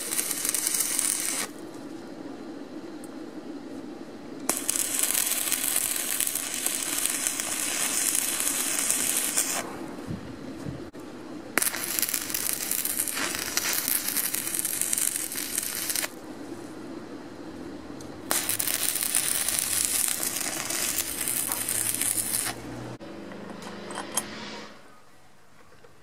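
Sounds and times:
welding arc crackling: 0.0 - 1.6, 4.5 - 9.7, 11.5 - 16.2, 18.2 - 23.0.

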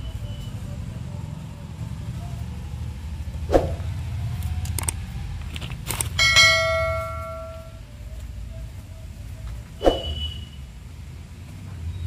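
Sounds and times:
bell-like metallic ring: 6.2 - 7.8.

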